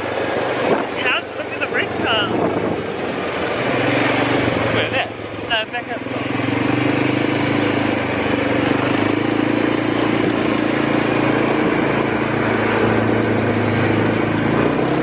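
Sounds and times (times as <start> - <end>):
small motorbike engine running: 0.0 - 15.0
wind and road rush: 0.0 - 15.0.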